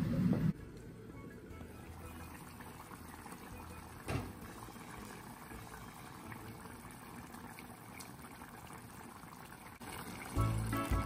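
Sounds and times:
curry bubbling in a pot: 1.8 - 11.0
thump: 4.1 - 4.4.

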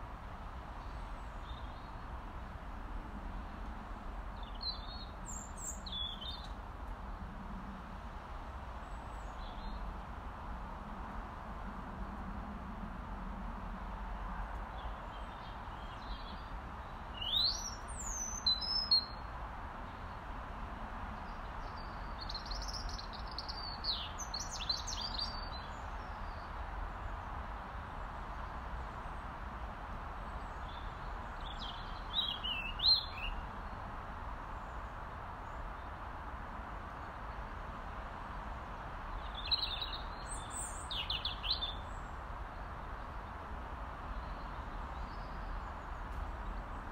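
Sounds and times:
robin calling: 17.1 - 19.2, 30.6 - 33.4, 39.1 - 42.0.

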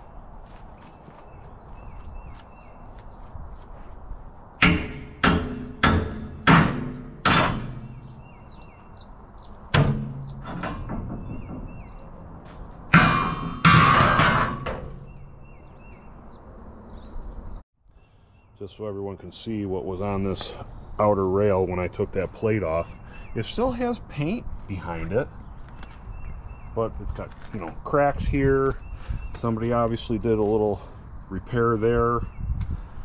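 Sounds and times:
metallic rattle: 4.6 - 8.4, 9.7 - 12.2, 12.9 - 15.4
sledgehammer clanging on steel: 4.6 - 8.6, 9.7 - 12.0, 12.9 - 15.4.

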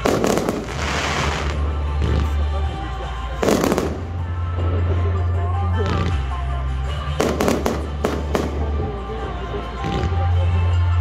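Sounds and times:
fireworks bangs and crackle: 0.0 - 2.7, 3.3 - 5.0, 7.0 - 9.0
music with heavy bass: 0.0 - 11.0.

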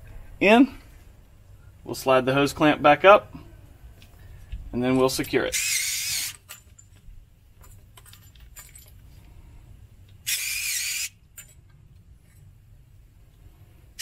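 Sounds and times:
power driver whirring: 10.2 - 11.2.

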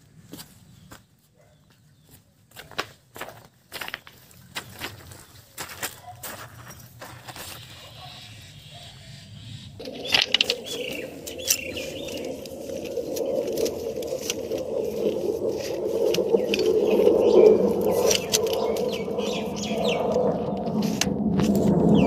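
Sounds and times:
steady rushing noise: 9.8 - 22.0.

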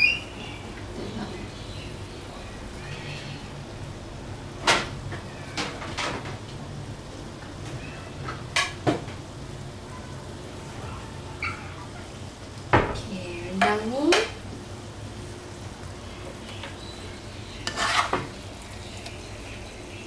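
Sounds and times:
low sizzle: 0.0 - 20.0
metal spatula scraping wok: 17.4 - 18.6.

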